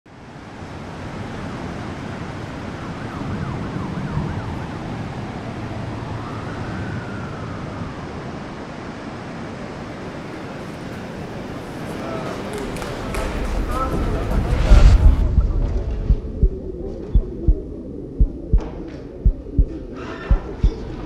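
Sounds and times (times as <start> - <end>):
city traffic: 0.4 - 16.2
emergency vehicle siren: 2.0 - 11.9.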